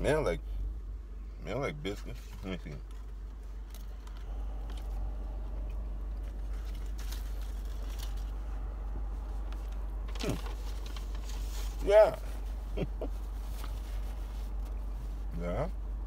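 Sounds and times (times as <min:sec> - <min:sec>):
steady low hum: 0:00.0 - 0:16.0
man chewing food: 0:02.8 - 0:11.3.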